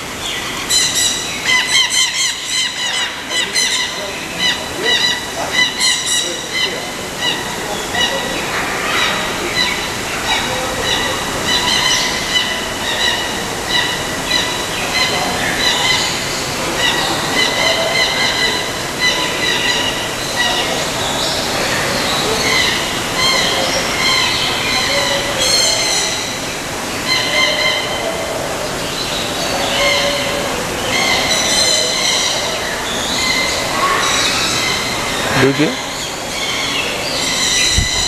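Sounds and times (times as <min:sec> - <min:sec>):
birds chattering and chirping: 0:00.0 - 0:38.0
steady background hiss: 0:00.0 - 0:38.0.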